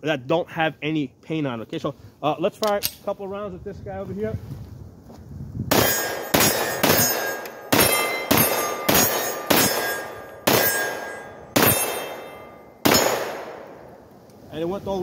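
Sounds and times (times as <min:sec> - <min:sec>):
short metallic ring: 0:05.7 - 0:13.1
pistol shots: 0:05.7 - 0:13.9.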